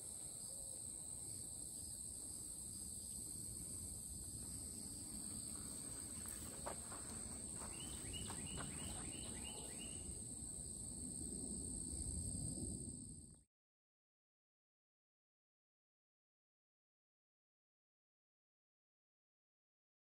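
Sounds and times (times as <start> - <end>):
insects buzzing: 0.0 - 13.4.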